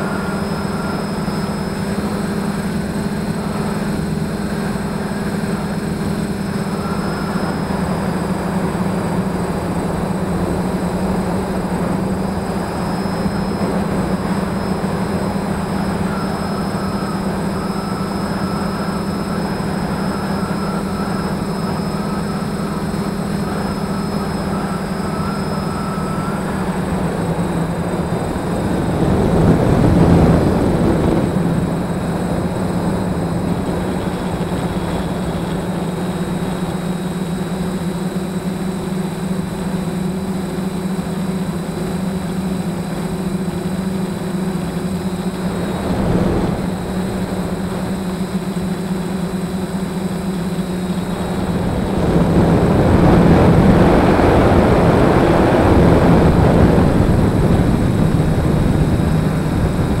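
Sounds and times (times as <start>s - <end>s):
drone motors and propellers: 0.0s - 60.0s
rushing swell: 43.7s - 60.0s.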